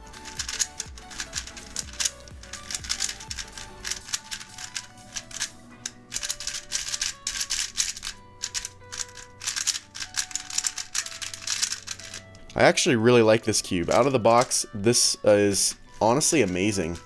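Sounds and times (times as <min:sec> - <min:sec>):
background music: 0:00.0 - 0:17.0
puzzle cube plastic clacks: 0:00.1 - 0:12.6.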